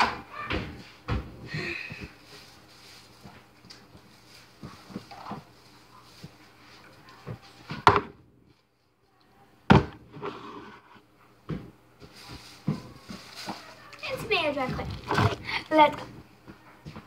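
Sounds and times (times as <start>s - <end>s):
soft handling sounds: 12.0s - 17.0s.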